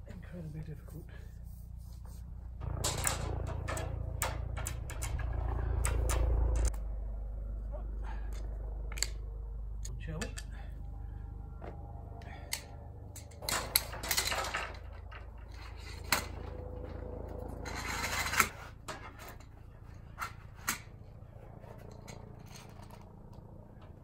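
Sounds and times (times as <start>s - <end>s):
pole scraping: 12.2s - 20.7s
clinks and clicks of metal clamps: 12.5s - 16.4s.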